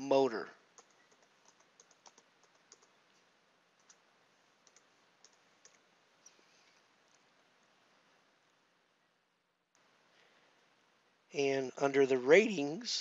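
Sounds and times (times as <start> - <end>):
computer keyboard keystrokes: 0.8 - 2.9, 4.6 - 5.8.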